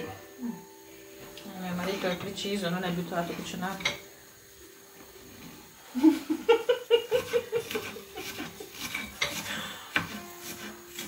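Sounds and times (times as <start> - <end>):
rhythmic bursts of laughing: 5.8 - 9.8.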